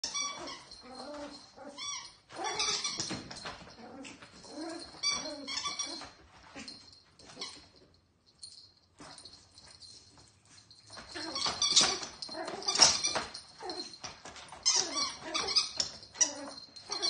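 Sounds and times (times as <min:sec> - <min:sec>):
squeaky toy squeaking: 0:00.0 - 0:03.2, 0:04.5 - 0:06.2, 0:11.1 - 0:13.7, 0:14.6 - 0:17.0
puppy growling and whining: 0:00.1 - 0:07.6, 0:11.1 - 0:14.0, 0:14.7 - 0:17.0.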